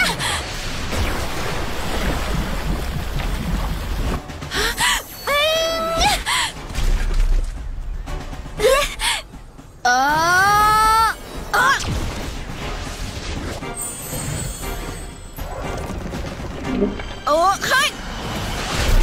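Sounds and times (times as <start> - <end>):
music: 2.0 - 19.0.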